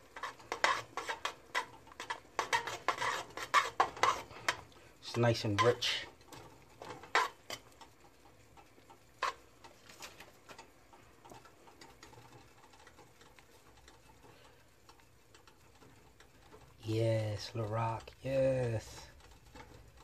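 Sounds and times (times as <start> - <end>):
spoon clinking and scraping pot: 0.0 - 8.0, 9.2 - 9.7.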